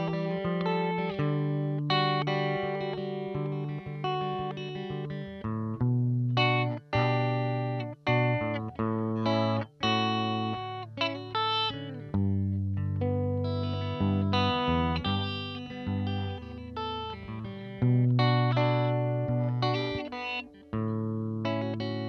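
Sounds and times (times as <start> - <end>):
clean electric guitar chords: 0.0 - 22.0.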